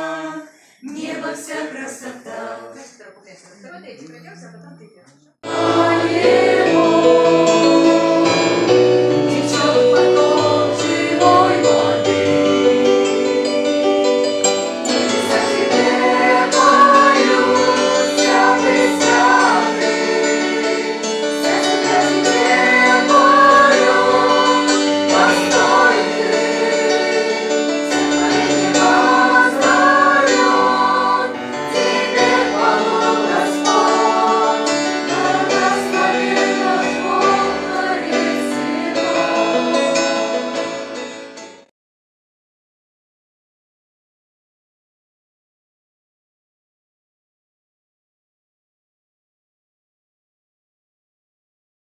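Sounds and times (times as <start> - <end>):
choir singing: 0.0 - 2.9, 5.4 - 13.4, 14.8 - 41.0
instrumental accompaniment: 5.4 - 41.7.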